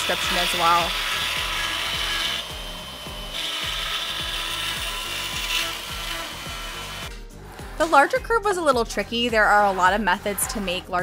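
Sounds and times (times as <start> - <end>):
router cutting wood: 0.0 - 7.1
soft background music: 0.0 - 11.0.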